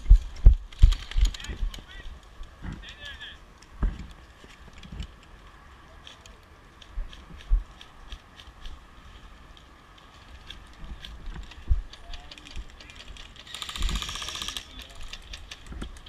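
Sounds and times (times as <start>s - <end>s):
faint clicks: 0.7s - 16.0s.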